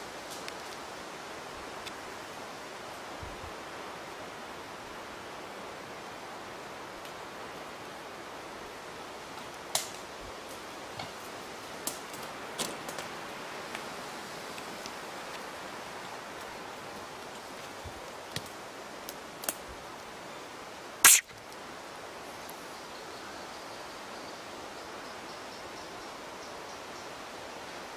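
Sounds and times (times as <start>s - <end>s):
steady woodland hiss: 0.0s - 27.9s
sharp clicks and snaps: 21.0s - 21.3s.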